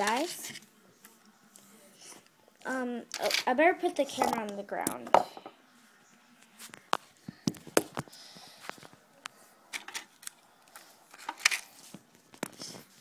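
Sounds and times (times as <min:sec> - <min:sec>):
plastic toy pieces moved: 0:03.1 - 0:03.5, 0:09.7 - 0:12.7.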